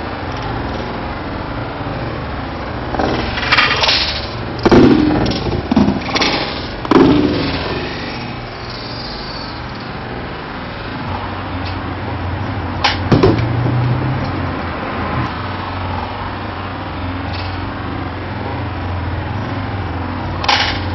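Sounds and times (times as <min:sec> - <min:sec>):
sharp knocks: 0:03.0 - 0:03.9, 0:04.6 - 0:07.9, 0:12.8 - 0:13.8.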